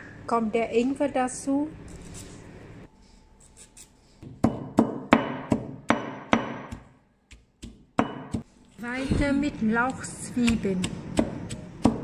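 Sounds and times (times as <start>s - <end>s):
pestle knocking in stone mortar: 4.2s - 8.5s, 9.8s - 12.0s.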